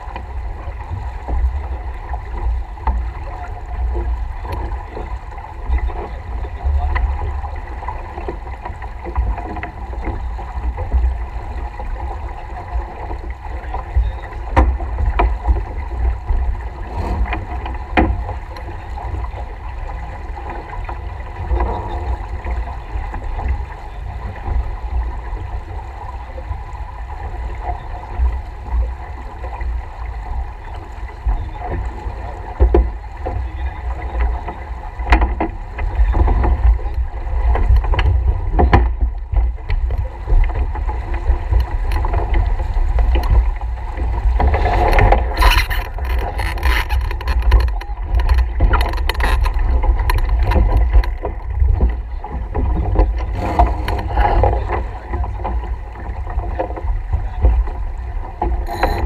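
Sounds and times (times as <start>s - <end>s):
water washing along hull: 0.0s - 59.0s
wind buffeting microphone: 0.0s - 59.0s
gear clicking and knocking: 44.6s - 51.3s.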